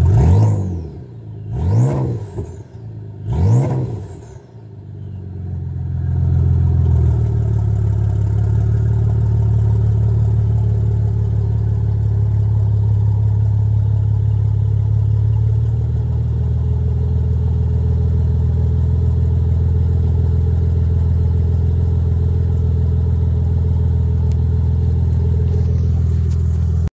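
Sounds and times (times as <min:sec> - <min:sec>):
car engine idling unmuffled: 0:00.8 - 0:03.3, 0:03.9 - 0:26.9
handling noise rustle: 0:25.1 - 0:26.9.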